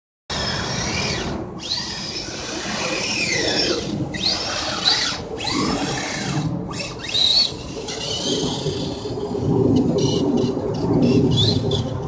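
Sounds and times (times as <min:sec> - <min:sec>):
electric motor whining: 0:00.3 - 0:09.2.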